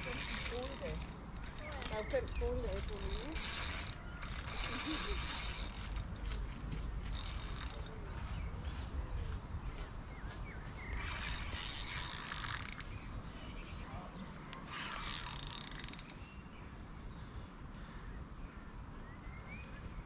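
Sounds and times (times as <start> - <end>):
fishing reel clicking whir: 0.0 - 6.3, 7.1 - 7.9, 11.0 - 12.9, 14.6 - 16.2.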